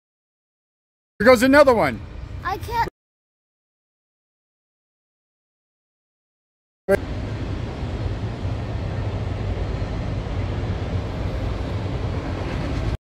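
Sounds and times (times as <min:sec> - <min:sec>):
steady low rumble: 0:07.0 - 0:13.0.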